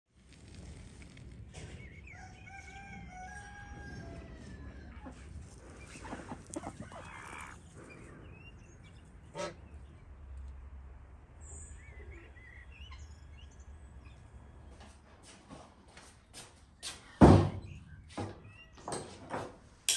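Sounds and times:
rooster crowing: 2.1 - 5.3
poultry calls: 2.1 - 10.0.

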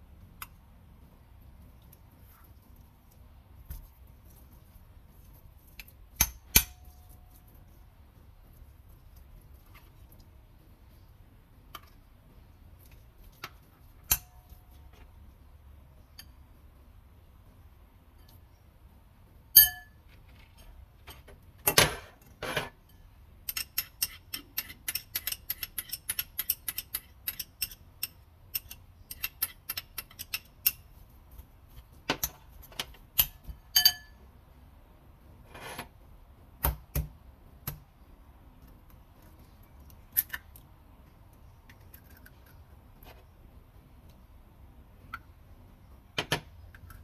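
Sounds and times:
metal spoon clinking on ceramic bowl: 33.7 - 34.2.

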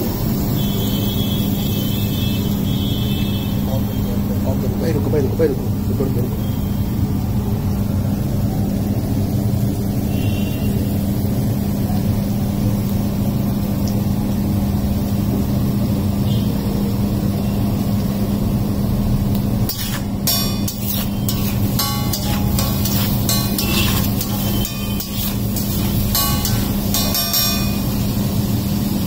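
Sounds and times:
constant hum: 18.0 - 29.0.

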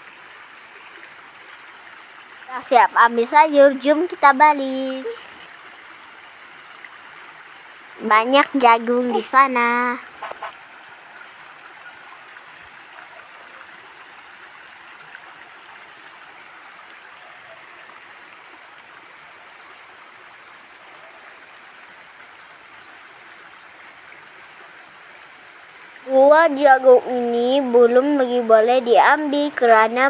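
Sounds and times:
steady rushing hiss: 0.0 - 17.1.

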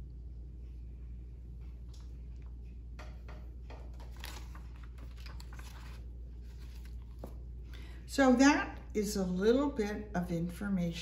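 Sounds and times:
steady low hum: 0.0 - 11.0
book pages rustling: 3.9 - 7.5.

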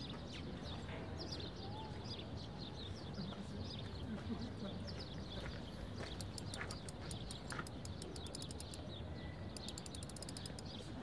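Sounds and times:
birds chirping: 0.0 - 11.0
high thin ticks: 6.1 - 8.8, 9.5 - 10.8.

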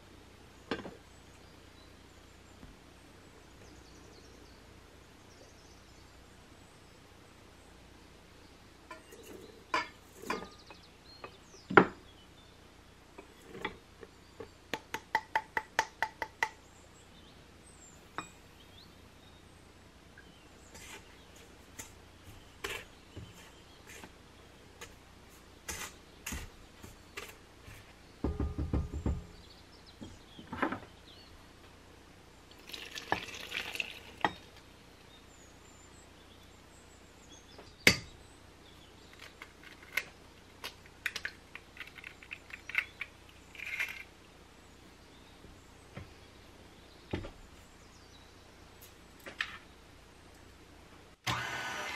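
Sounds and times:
liquid pouring: 32.5 - 34.4.

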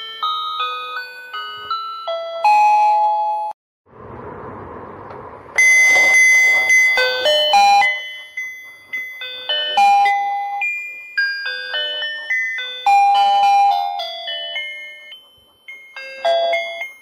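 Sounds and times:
rustling noise: 4.3 - 9.7
electronic chime melody: 5.6 - 10.7.

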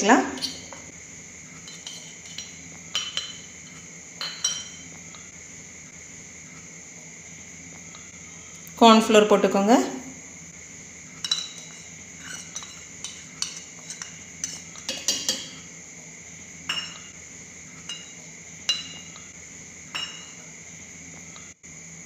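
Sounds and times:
spoon clinking on steel jar: 11.2 - 15.6, 17.9 - 18.1.

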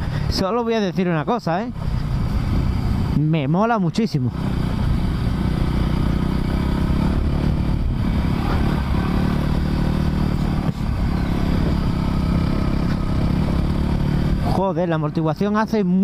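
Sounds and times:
motorcycle engine running: 0.0 - 16.0
motorcycle clatter: 4.4 - 14.6.

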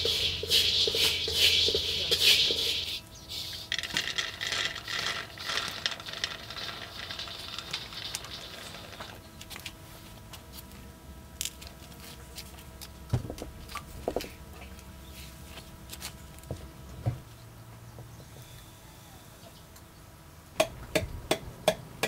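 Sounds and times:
spatula scraping a wok: 0.0 - 3.8
peanuts rattling in a wok: 0.0 - 9.2.

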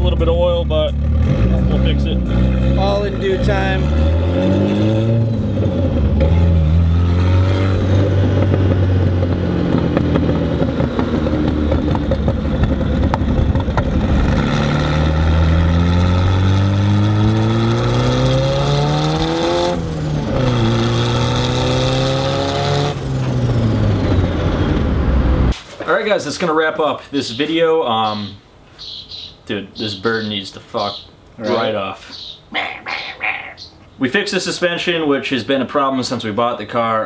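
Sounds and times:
car engine and exhaust: 0.0 - 25.6.

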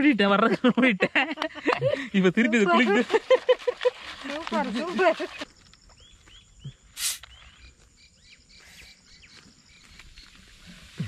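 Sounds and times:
faint insect drone: 0.1 - 11.0
short bird chirps: 6.0 - 11.0
loud hiss-like rush: 7.0 - 7.3.

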